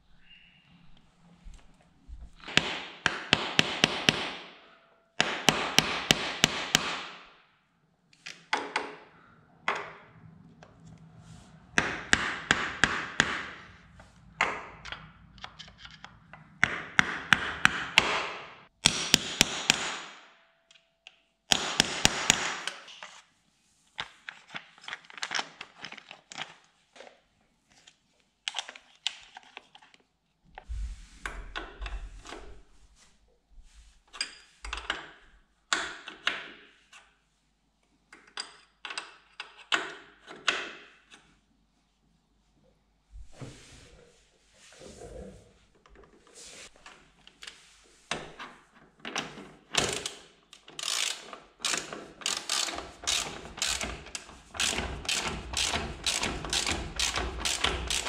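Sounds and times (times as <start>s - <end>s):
ratchet wrench clicking: 49.8s - 58.0s.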